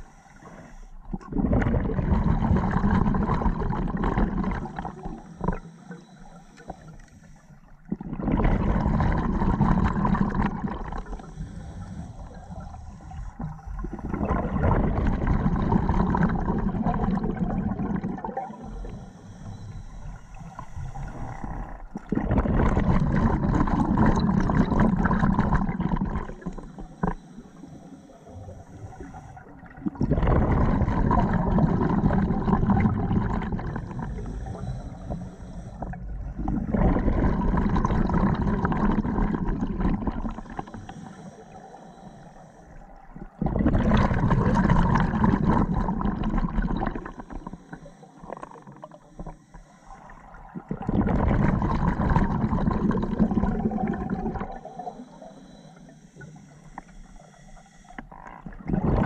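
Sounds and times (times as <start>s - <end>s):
hissing regulator inhales: 0.0s - 1.0s, 4.6s - 7.7s, 10.9s - 14.2s, 18.5s - 21.8s, 26.3s - 29.6s, 33.5s - 36.4s, 40.3s - 42.9s, 46.9s - 50.4s, 54.6s - 58.1s
exhaled bubbles rushing: 1.1s - 5.6s, 7.8s - 11.3s, 12.3s - 18.7s, 21.0s - 27.2s, 28.4s - 35.2s, 35.8s - 40.8s, 42.9s - 49.4s, 50.1s - 55.2s, 58.4s - 59.0s.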